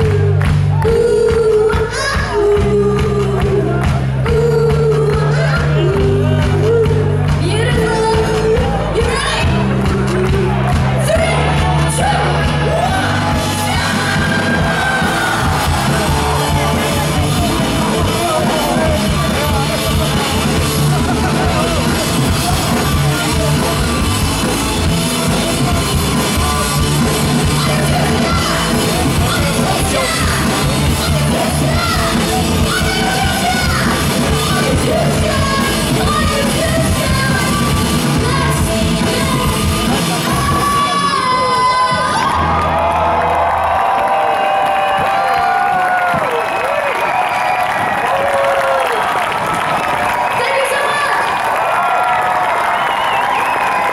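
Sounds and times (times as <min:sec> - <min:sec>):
electric guitar: 0:00.0 - 0:46.3
rock band playing: 0:00.0 - 0:53.9
woman singing and shouting: 0:27.5 - 0:42.3.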